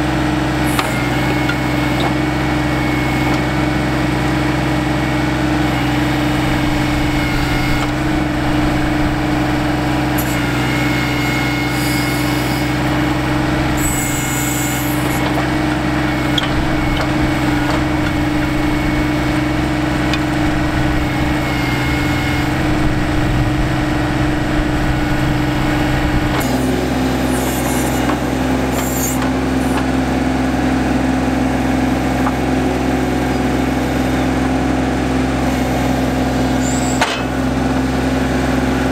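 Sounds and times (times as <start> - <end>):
diesel tractor engine running: 0.0 - 38.9
thin hydraulic whine: 0.6 - 3.7, 5.5 - 29.9, 36.5 - 37.3.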